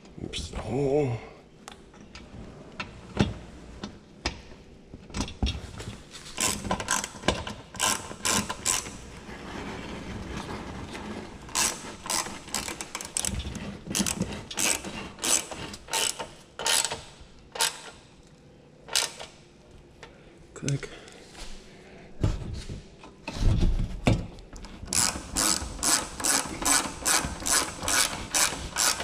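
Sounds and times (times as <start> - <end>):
hand ratchet clicking: 6.4 - 9.0, 11.5 - 13.3, 13.9 - 18.0, 18.9 - 19.3, 24.9 - 29.0.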